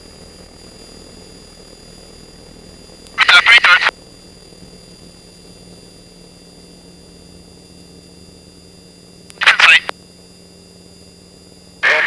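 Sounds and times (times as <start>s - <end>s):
aircraft engine drone: 0.0s - 12.0s
radio call: 3.2s - 3.9s, 9.3s - 9.9s.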